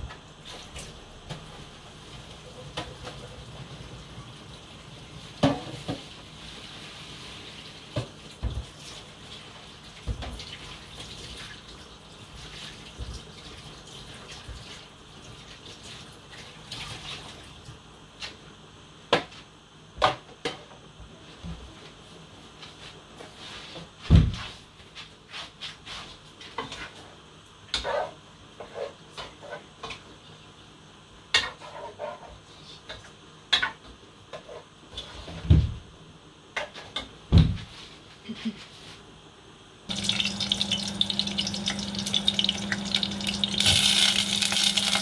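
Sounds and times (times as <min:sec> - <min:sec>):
water running: 0:39.9 - 0:45.0.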